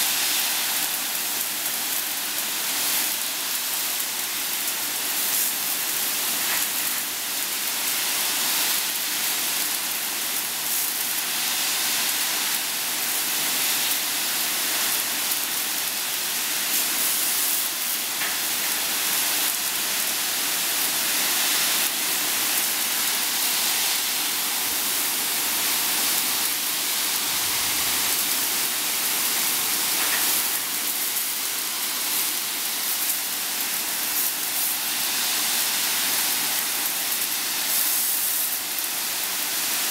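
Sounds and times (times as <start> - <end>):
water jets hissing: 22.1 - 36.5.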